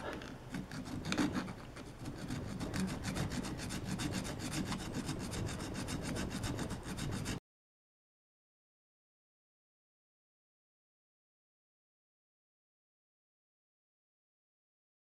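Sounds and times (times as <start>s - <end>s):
hand file rasping on steel: 0.0s - 7.4s.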